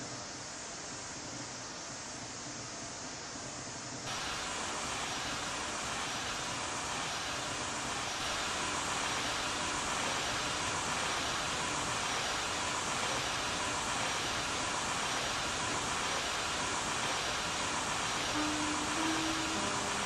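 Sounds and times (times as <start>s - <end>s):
steam locomotive hissing steam: 0.0s - 20.0s
low steady tone: 18.3s - 20.0s.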